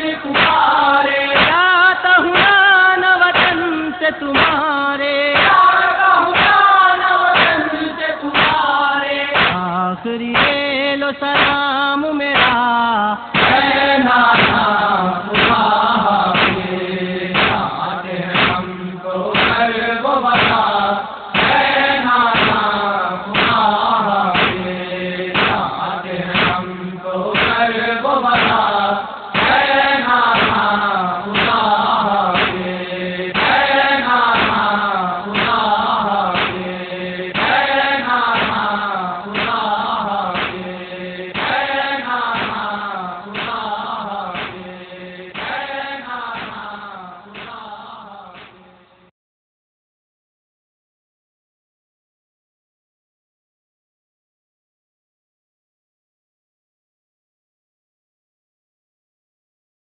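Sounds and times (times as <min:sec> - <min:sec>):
men chanting in chorus: 0:00.0 - 0:48.7
hands striking chest: 0:32.4 - 0:32.6, 0:36.4 - 0:36.6, 0:39.4 - 0:39.6, 0:40.4 - 0:40.6, 0:44.4 - 0:44.6, 0:48.4 - 0:48.6.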